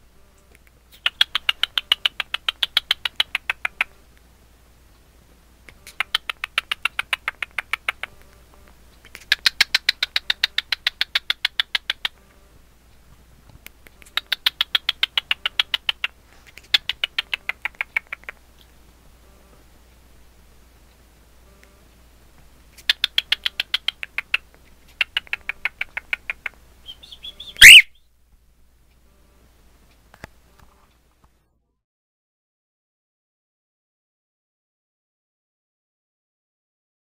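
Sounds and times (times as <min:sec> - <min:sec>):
cockatiel rapid clicking: 0:00.4 - 0:04.0, 0:05.7 - 0:08.4, 0:09.0 - 0:12.3, 0:13.5 - 0:18.7, 0:22.8 - 0:27.9.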